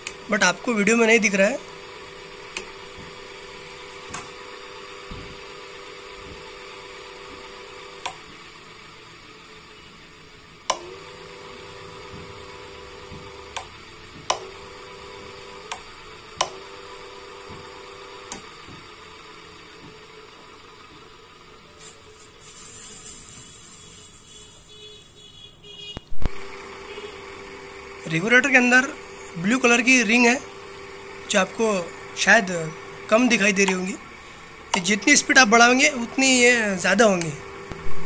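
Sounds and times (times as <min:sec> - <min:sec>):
ceiling fan motor humming: 0:26.1 - 0:38.0.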